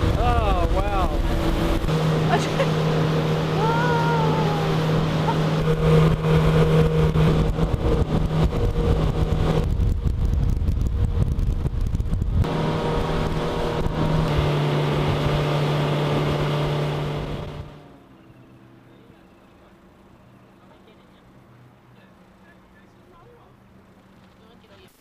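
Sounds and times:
water rushing past hull: 0.0 - 18.1
outboard motor drone: 0.0 - 25.0.

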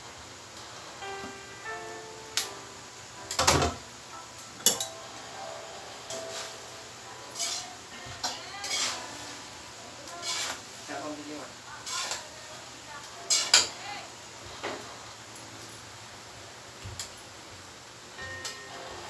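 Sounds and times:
metal utensils clanking in a wok: 4.6 - 5.0, 7.3 - 9.3, 10.1 - 10.6, 11.8 - 12.3, 13.3 - 13.8.

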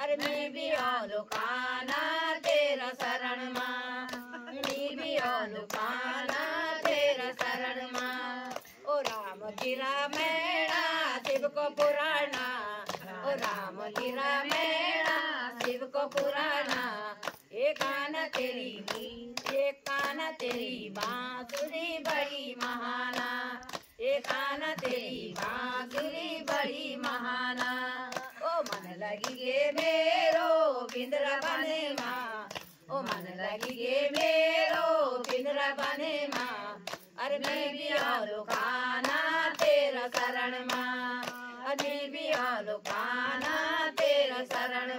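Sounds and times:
hand-clapping in time: 0.0 - 44.9
women singing devotional song: 0.0 - 44.9.

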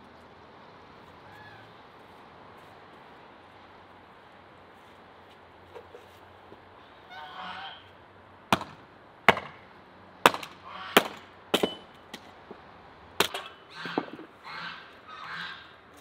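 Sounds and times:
honking calls: 6.8 - 8.0, 10.6 - 11.1, 13.4 - 15.9
hatchet chopping wood: 8.5 - 12.3, 13.2 - 14.3.

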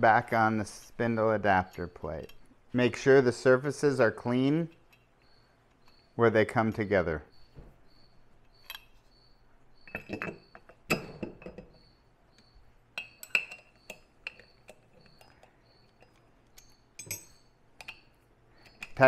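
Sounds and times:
metal parts clinking: 8.4 - 9.1, 9.8 - 11.9, 13.0 - 19.0.

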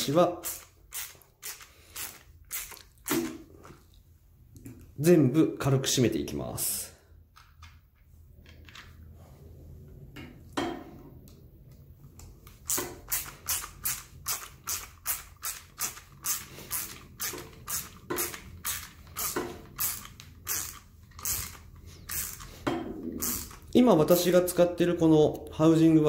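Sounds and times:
screws creaking into plastic: 0.4 - 3.4, 12.5 - 23.7.

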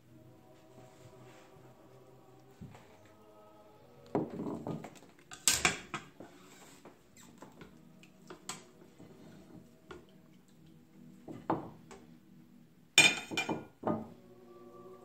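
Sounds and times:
plate clattering on counter: 13.0 - 13.7.

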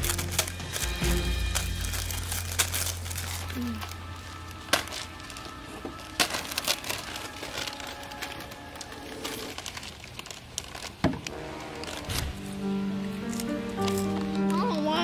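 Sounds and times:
foil bags crinkling: 0.0 - 15.0
quiet background music: 0.0 - 15.0.

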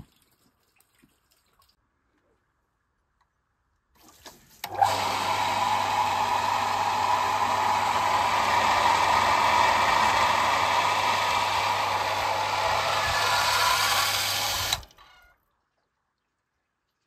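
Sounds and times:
electric pump humming and whirring: 4.1 - 15.1.

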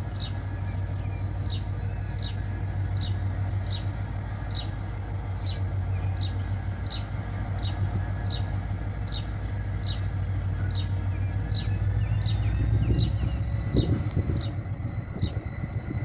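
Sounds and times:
diesel locomotive rumbling: 0.0 - 16.0
bird chirping: 5.4 - 15.8.

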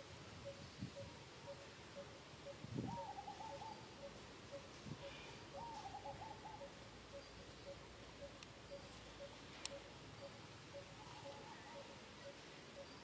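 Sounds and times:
repeating single-note animal call: 6.1 - 13.0.

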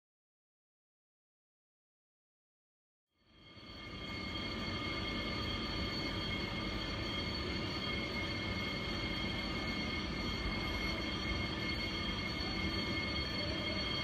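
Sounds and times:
electric locomotive rumbling and whining: 3.3 - 14.0.

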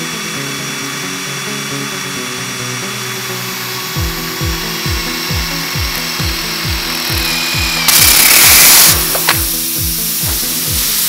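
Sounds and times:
cordless drill boring into rubber: 0.0 - 11.0
air hissing from tire: 3.4 - 11.0
background music with beat: 3.7 - 11.0.

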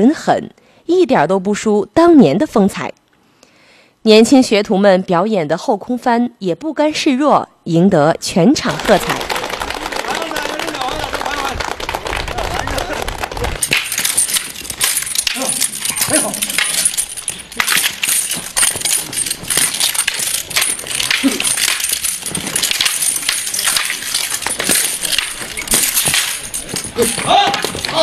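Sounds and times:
wooden staffs clacking: 8.7 - 28.0.

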